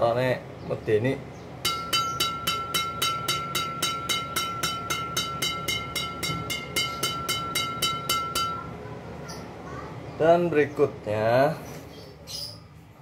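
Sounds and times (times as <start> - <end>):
racket strings tapped ringing ping: 1.6 - 8.8.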